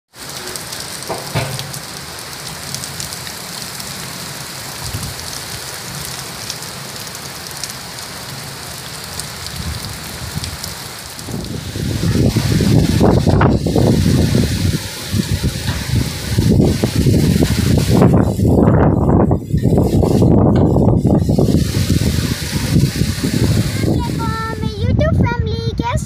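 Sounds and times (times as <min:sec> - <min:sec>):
heavy rain pouring: 0:00.1 - 0:26.0
knock: 0:01.1 - 0:01.7
low rush: 0:11.2 - 0:26.0.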